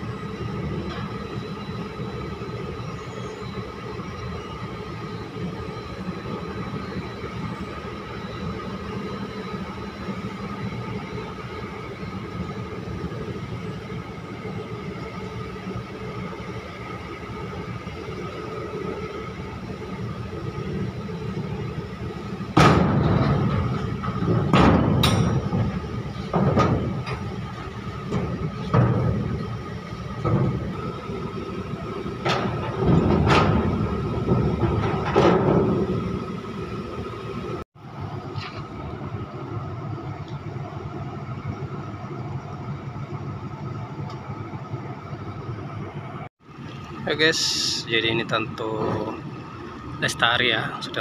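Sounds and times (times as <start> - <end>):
machinery hum: 0.0 - 51.0
heavy metal bangs and clanks: 22.4 - 36.7.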